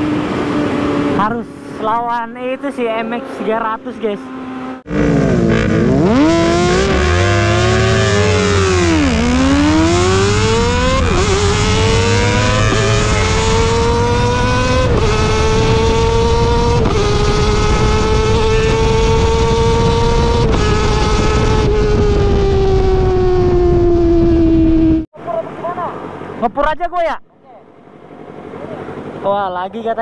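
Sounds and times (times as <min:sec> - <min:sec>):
motorcycle accelerating through gears: 0:04.2 - 0:25.1
wind rush: 0:05.5 - 0:25.1.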